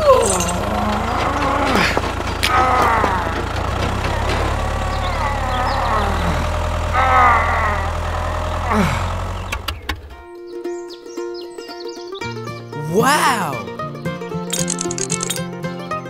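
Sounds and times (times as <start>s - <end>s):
music: 10.1s - 16.0s
high-pitched voice exclamations: 12.8s - 13.7s.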